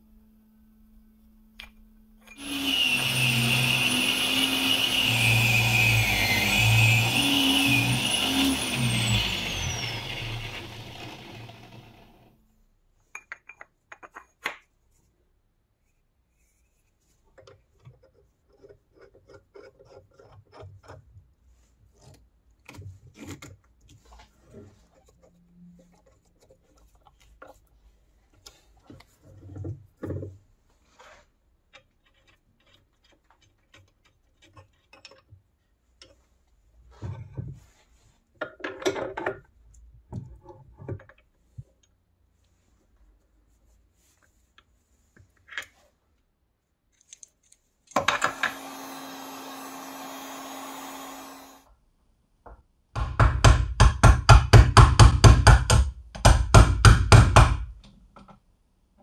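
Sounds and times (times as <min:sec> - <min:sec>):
steady machine whirr: 0:48.3 - 0:51.6.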